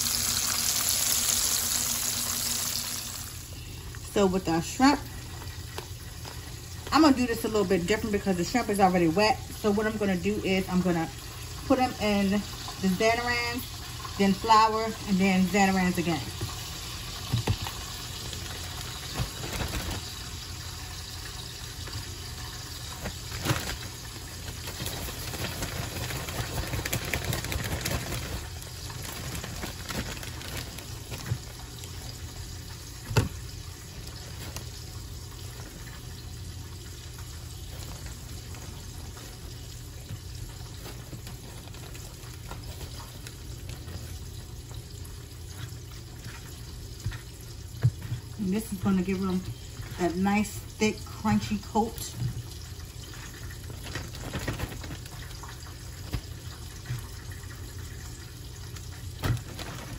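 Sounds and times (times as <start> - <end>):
fish sizzling in hot oil: 0.0 - 3.8, 16.0 - 27.6
plastic bag crinkling: 16.0 - 36.3, 36.9 - 50.0, 51.0 - 59.9.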